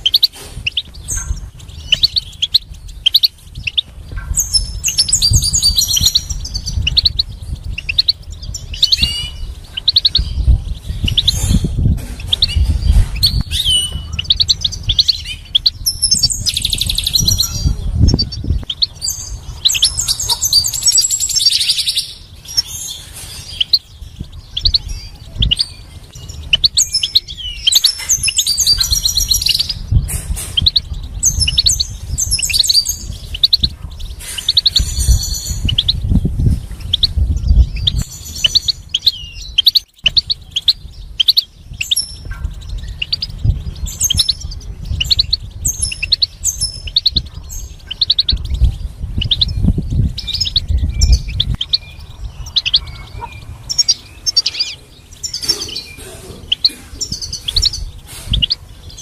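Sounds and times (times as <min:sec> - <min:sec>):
goldfinch twittering song: 0:00.0 - 0:59.0.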